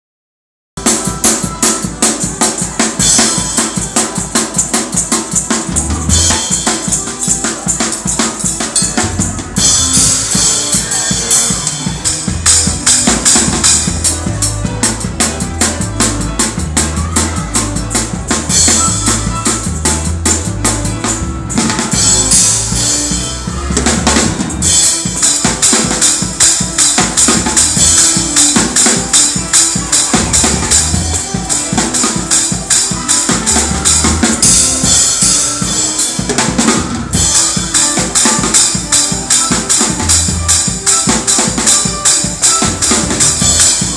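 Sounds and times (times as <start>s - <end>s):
fast drum kit playing: 0.8s - 43.9s
deep bass notes: 12.1s - 24.8s.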